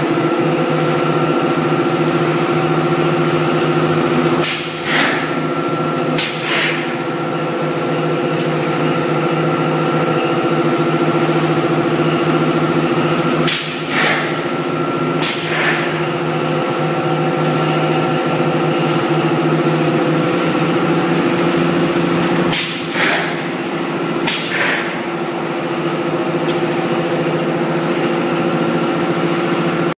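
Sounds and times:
machine running with steady hum: 0:00.0 - 0:30.0
short hisses of air: 0:04.8 - 0:05.2, 0:06.2 - 0:06.8, 0:13.5 - 0:14.4, 0:15.2 - 0:16.0, 0:22.5 - 0:23.4, 0:24.3 - 0:25.0.

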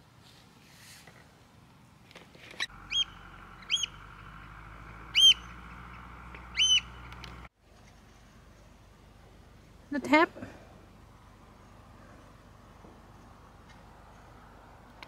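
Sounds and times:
bird calling: 0:02.6 - 0:07.5.

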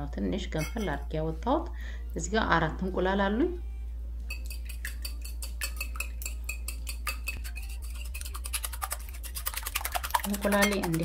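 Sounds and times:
whisk beating eggs in a bowl: 0:04.3 - 0:11.0.

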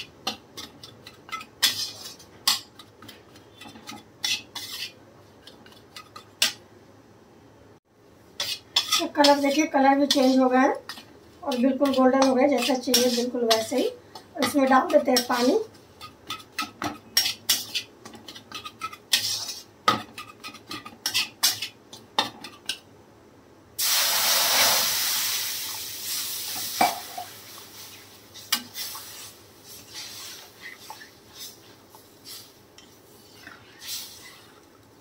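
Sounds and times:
spatula scraping metal pan: 0:00.2 - 0:06.6, 0:08.4 - 0:22.8
water poured into pan: 0:23.8 - 0:26.2
loud sizzling: 0:23.8 - 0:31.6.

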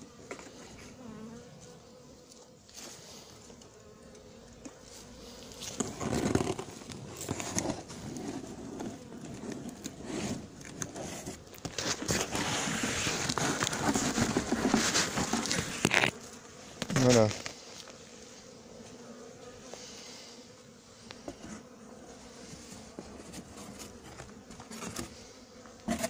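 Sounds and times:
cardboard and cloth rustling: 0:05.6 - 0:16.1.

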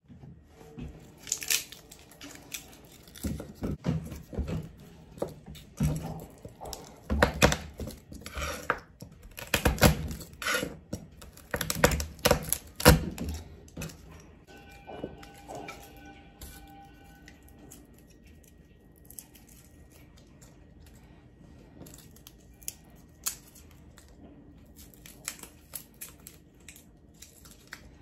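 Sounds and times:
garlic skins rustling: 0:01.0 - 0:21.1.

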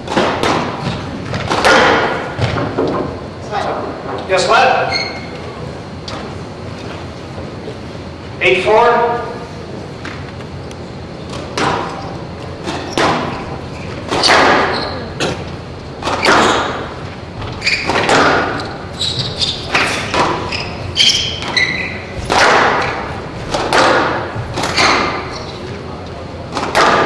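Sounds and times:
squash ball hits echoing: 0:00.0 - 0:03.2, 0:11.3 - 0:15.4, 0:16.0 - 0:25.9, 0:26.5 - 0:27.0.

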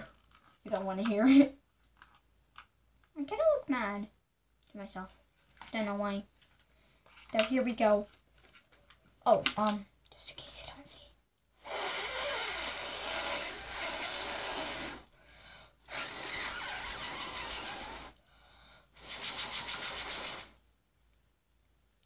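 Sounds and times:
person blowing on fidget spinner: 0:11.6 - 0:15.2, 0:15.9 - 0:18.2, 0:19.0 - 0:20.6.

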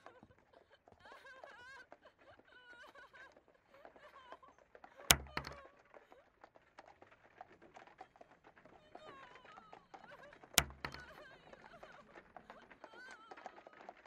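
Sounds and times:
sharp thunk: 0:05.1 - 0:05.6, 0:10.6 - 0:11.2.

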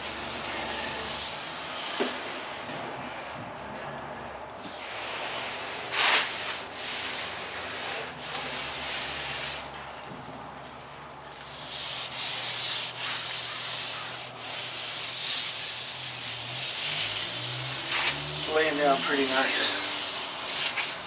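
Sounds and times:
fiberglass sheet rasping and scraping: 0:00.3 - 0:02.0, 0:04.7 - 0:09.7, 0:11.5 - 0:21.0.

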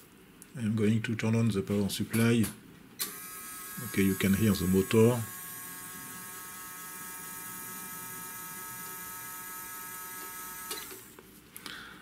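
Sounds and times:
small motor whining: 0:03.0 - 0:11.1.

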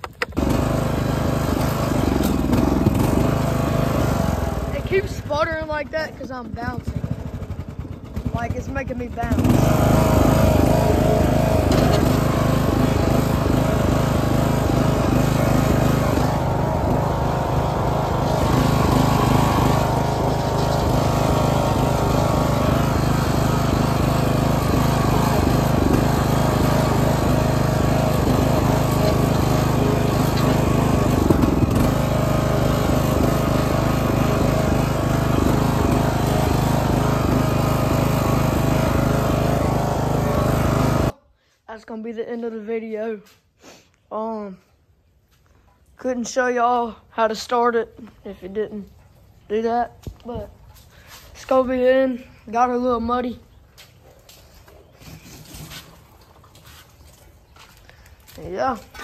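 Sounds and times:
riding lawn mower engine running: 0:00.0 - 0:41.2.

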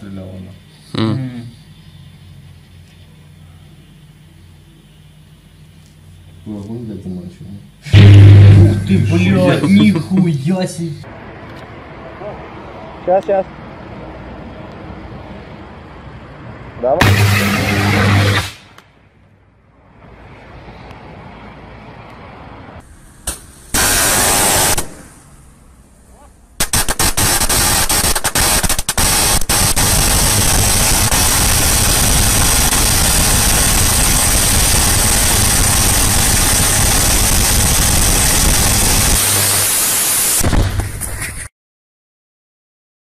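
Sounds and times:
arc crackling hiss and buzz: 0:07.8 - 0:09.6, 0:17.0 - 0:18.8, 0:23.2 - 0:25.1, 0:26.6 - 0:41.3
electrical arc burst: 0:07.9 - 0:09.8, 0:17.0 - 0:18.8, 0:23.2 - 0:25.2, 0:26.6 - 0:41.5.

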